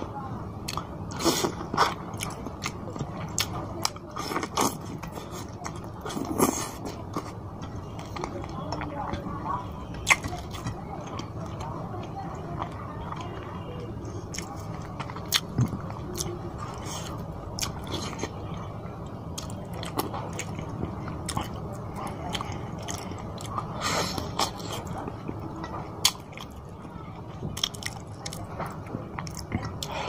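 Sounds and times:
man chewing food: 0.0 - 30.0.

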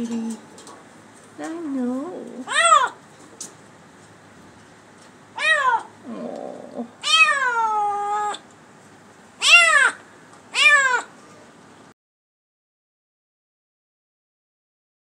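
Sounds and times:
kitten meowing: 5.4 - 5.9, 7.0 - 8.4, 9.4 - 10.0, 10.6 - 11.1.

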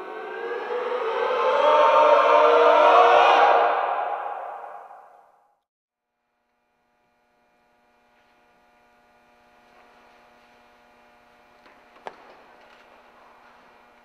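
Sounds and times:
steady electrical hum: 6.2 - 14.0.

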